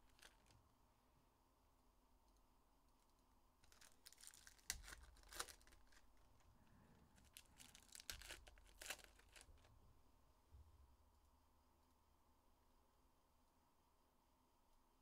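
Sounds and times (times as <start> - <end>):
foil wrappers tearing and crinkling: 0.0 - 0.6, 3.6 - 6.4, 7.2 - 9.7.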